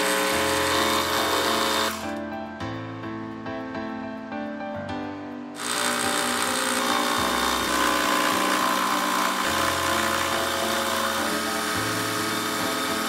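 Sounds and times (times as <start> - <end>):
milling machine cutting metal: 0.0 - 2.2, 5.6 - 13.0.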